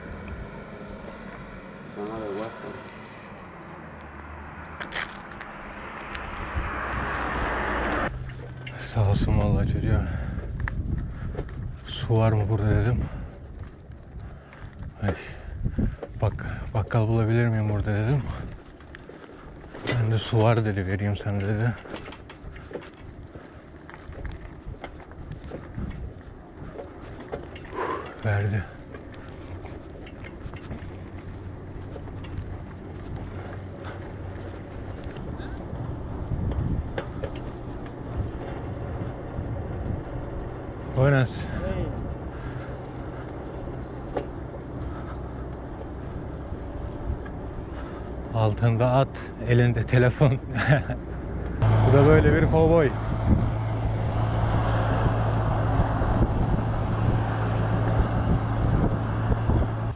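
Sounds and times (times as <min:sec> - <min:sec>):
bicycle rolling on rough asphalt: 0:00.0 - 0:41.4, 0:42.0 - 0:59.9
constant low hum: 0:00.0 - 0:59.9
road and wind noise: 0:00.0 - 0:59.9
light clicks and rattles: 0:13.3 - 0:39.6.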